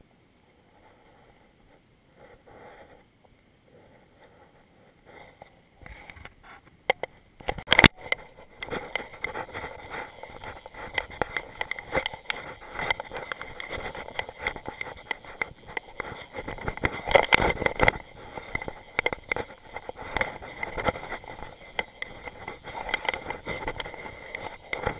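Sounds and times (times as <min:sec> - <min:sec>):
crackling: 0:06.9 - 0:24.9.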